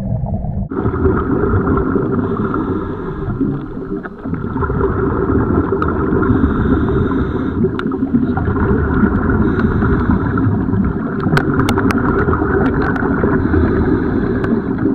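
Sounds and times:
underwater rumble of moving water: 0:00.0 - 0:14.9
sharp underwater clicks: 0:07.6 - 0:14.9.

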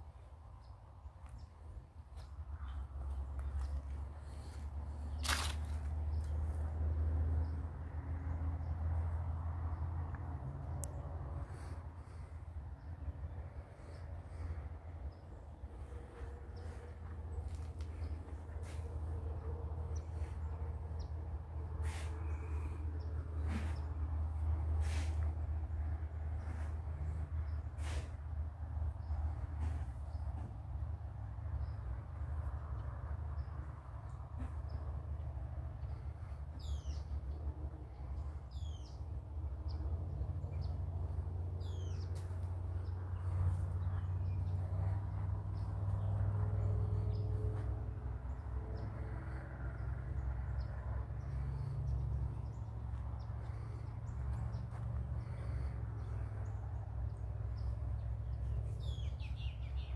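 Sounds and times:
steady low rumble: 0:00.0 - 0:58.8.

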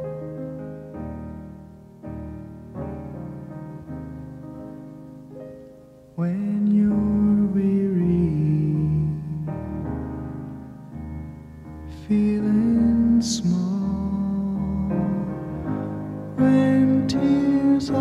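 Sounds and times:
slow instrumental piano music: 0:00.0 - 0:18.0.

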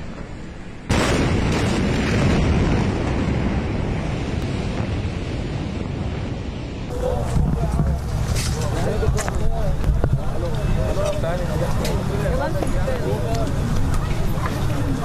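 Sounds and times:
explosion boom: 0:00.9 - 0:08.6.

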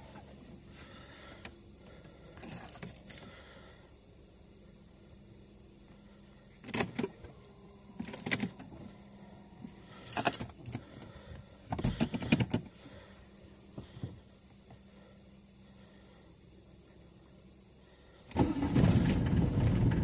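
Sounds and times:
faint steady hum: 0:00.0 - 0:20.0
car keys jangling: 0:02.4 - 0:03.3, 0:09.7 - 0:10.8.

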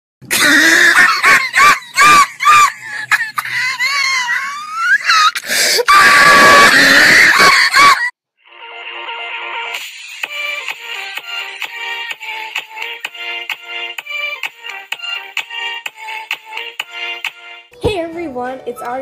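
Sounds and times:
girls screaming and shrieking: 0:03.5 - 0:08.1.

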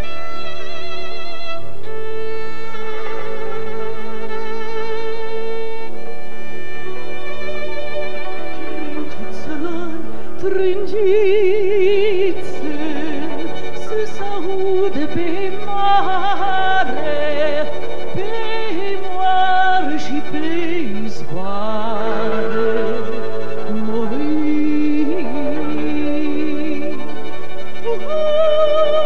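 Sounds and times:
folk ensemble with violin: 0:00.0 - 0:29.0
low sustained bass: 0:00.0 - 0:29.0
woman singing with vibrato: 0:08.0 - 0:29.0.

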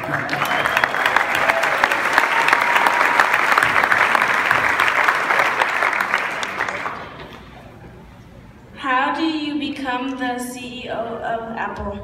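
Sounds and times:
large audience applauding: 0:00.0 - 0:07.4.

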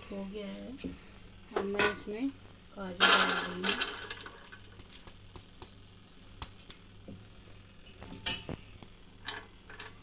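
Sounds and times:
nuts knocking and clinking on metal: 0:03.0 - 0:05.8, 0:09.2 - 0:10.0.

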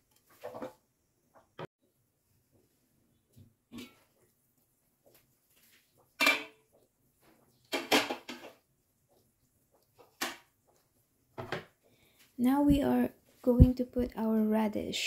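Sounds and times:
metal pot lid clanking: 0:03.7 - 0:04.1, 0:06.2 - 0:06.6.

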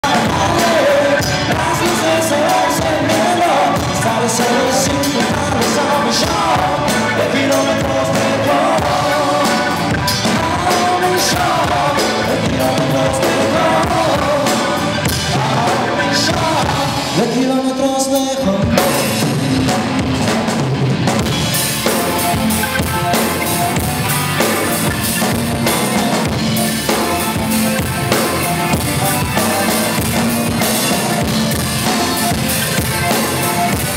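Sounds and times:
person singing lead vocal: 0:00.0 - 0:20.6
bass guitar: 0:00.0 - 0:33.9
drum kit: 0:00.0 - 0:33.9
electric guitars: 0:00.0 - 0:33.9
keyboard: 0:00.0 - 0:33.9.

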